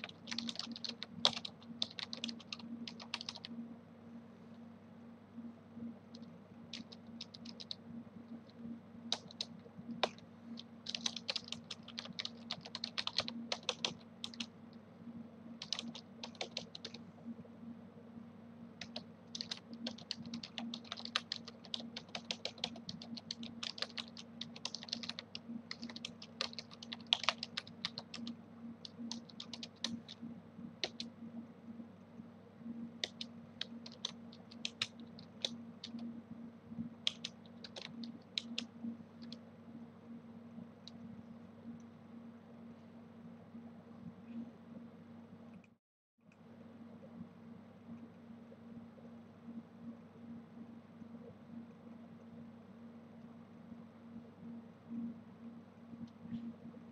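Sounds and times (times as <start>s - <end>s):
keyboard typing: 0.0s - 3.5s, 6.2s - 7.8s, 9.1s - 14.5s, 15.6s - 17.0s, 18.8s - 30.2s, 30.8s - 31.1s, 33.0s - 36.1s, 37.0s - 39.4s
steady low hum: 0.0s - 56.9s.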